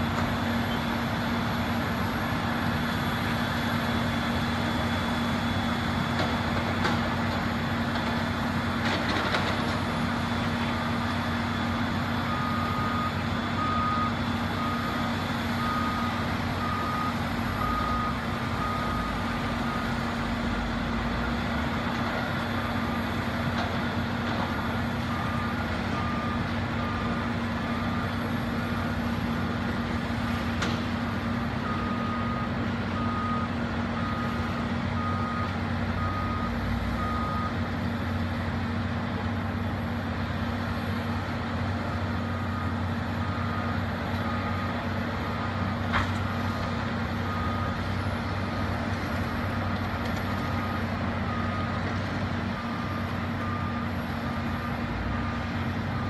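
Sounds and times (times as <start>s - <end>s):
distant heavy machinery running: 0.0s - 56.0s.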